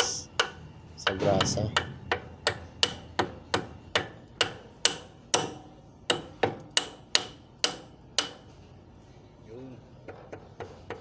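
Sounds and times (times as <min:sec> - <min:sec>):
hammer tapping metal: 0:00.0 - 0:08.5.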